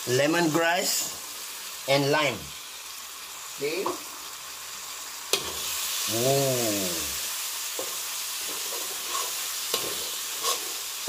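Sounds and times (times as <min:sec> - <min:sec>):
paste sizzling in a wok: 0:00.0 - 0:11.0
metal spatula scraping wok: 0:07.8 - 0:11.0.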